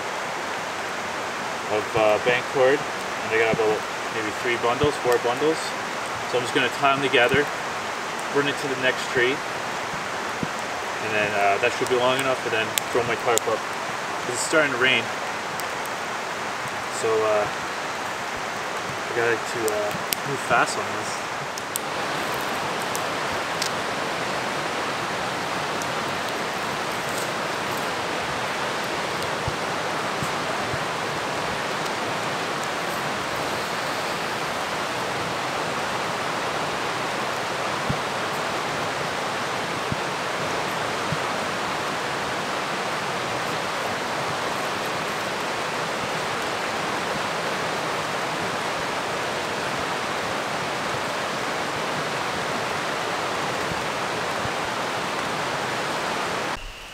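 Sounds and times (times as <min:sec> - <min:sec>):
water rushing: 0:00.0 - 0:56.9.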